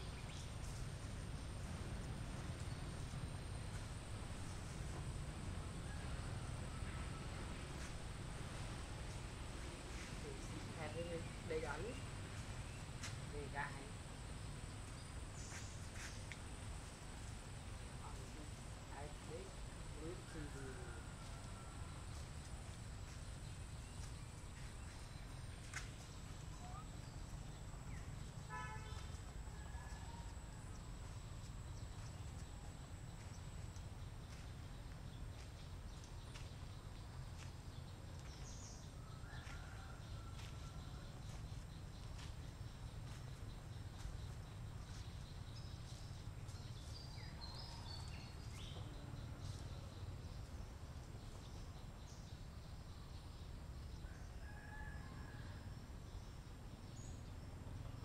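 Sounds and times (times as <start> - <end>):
steady low rumble: 0.0 - 28.5.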